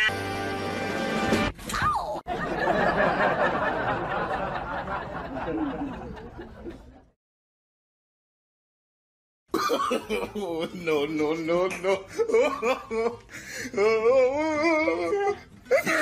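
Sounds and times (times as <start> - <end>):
people laughing: 2.3 - 7.1, 9.6 - 13.3.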